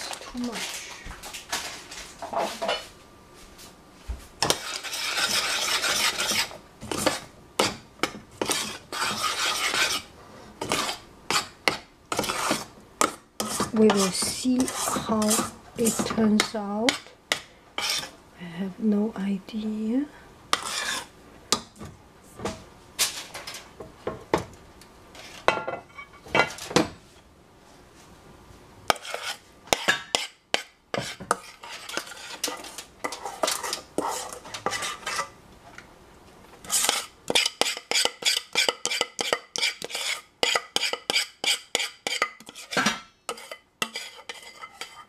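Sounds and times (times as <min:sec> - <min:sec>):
spoon scraping a saucepan: 0:04.4 - 0:17.1, 0:17.8 - 0:18.2, 0:20.5 - 0:21.1, 0:28.9 - 0:35.4, 0:36.6 - 0:45.0.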